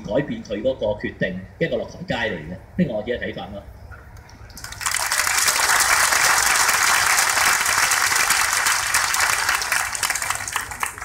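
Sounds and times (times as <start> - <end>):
crowd applauding: 4.5 - 11.0.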